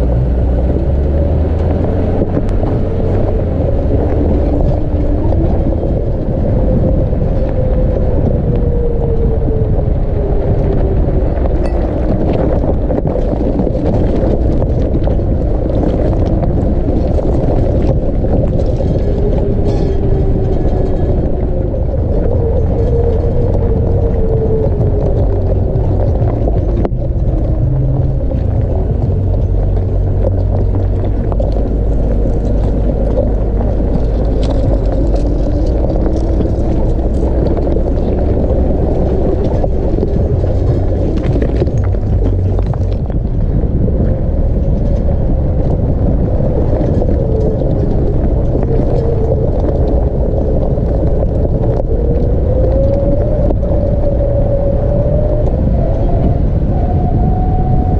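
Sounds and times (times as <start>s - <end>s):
engine running: 0.0s - 57.9s
tyres crunching over stones: 10.2s - 56.2s.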